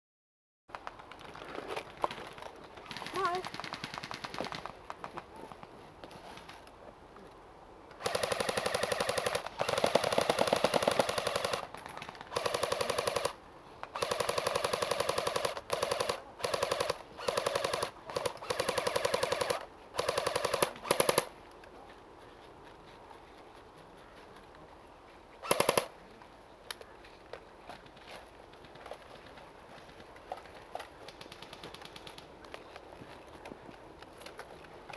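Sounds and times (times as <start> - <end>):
airsoft rifle firing bursts: 8.0 - 11.7, 12.3 - 13.4, 14.0 - 21.3, 25.4 - 25.9.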